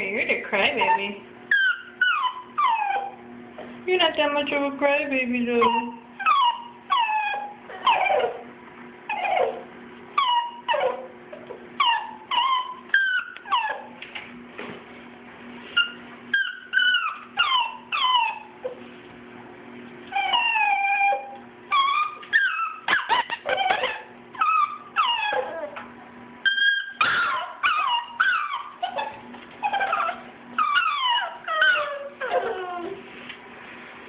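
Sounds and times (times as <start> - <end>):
puppies whimpering and yipping: 0.8 - 3.2, 5.6 - 8.4, 9.1 - 11.1, 11.8 - 14.0, 15.6 - 18.9, 20.1 - 33.0.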